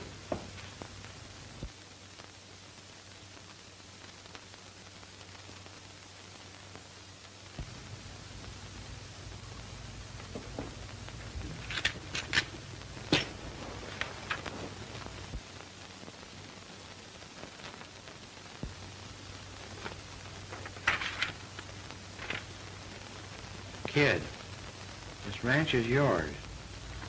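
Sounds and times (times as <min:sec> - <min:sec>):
film soundtrack hiss: 0:00.0 - 0:27.0
paper rustling and clicking: 0:11.5 - 0:14.5, 0:19.8 - 0:22.5.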